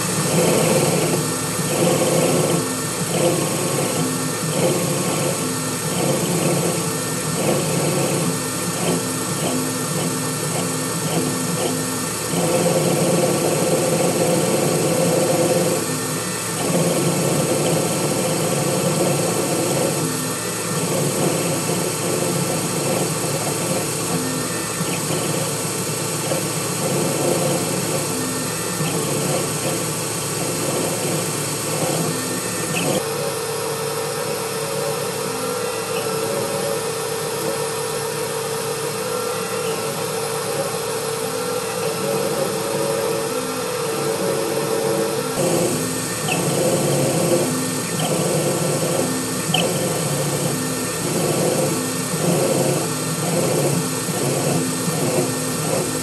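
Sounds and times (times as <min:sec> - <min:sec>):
lathe cutting with mechanical whine: 0:00.0 - 0:56.0
machine hum with held tone: 0:00.0 - 0:56.0.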